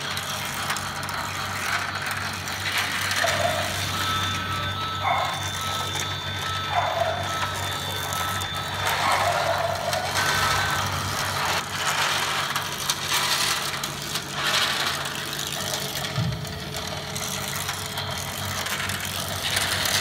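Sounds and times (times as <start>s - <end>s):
toy train motor humming: 0.0s - 20.0s
plastic rattling: 7.2s - 20.0s.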